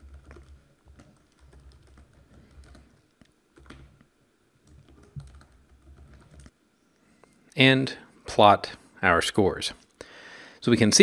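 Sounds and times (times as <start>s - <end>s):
typing on computer keyboard: 0.0s - 4.0s, 4.6s - 6.5s.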